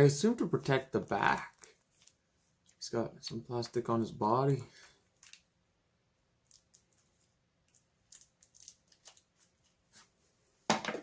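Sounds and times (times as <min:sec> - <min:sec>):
plastic film being peeled off: 0:08.1 - 0:09.8.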